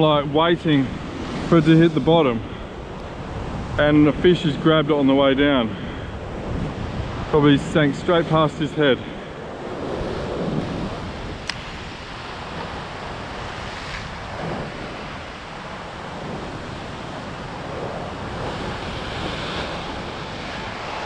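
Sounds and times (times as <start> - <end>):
ocean swell washing against rock: 0.0 - 21.0.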